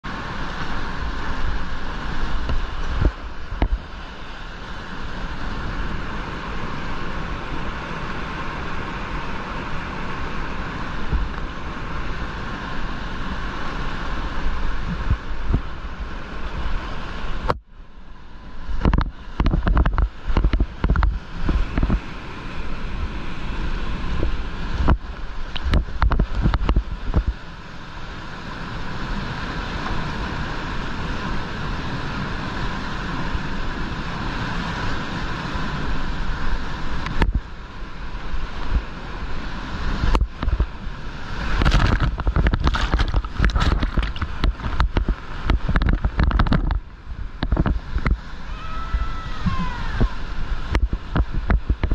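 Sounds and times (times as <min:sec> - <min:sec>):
wind buffeting microphone: 0:00.0 - 0:17.7, 0:18.3 - 0:27.5, 0:28.8 - 0:51.9
whitewater rushing: 0:00.0 - 0:51.9
heavy splashes and thumps: 0:41.4 - 0:48.2.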